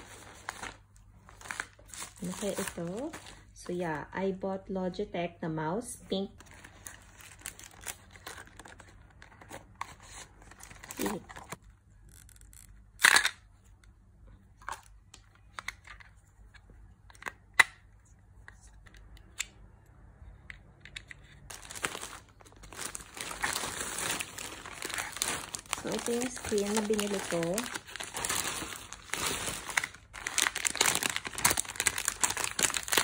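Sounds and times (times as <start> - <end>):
plastic packaging crinkling: 0.0 - 3.5, 6.4 - 13.2, 21.4 - 33.0.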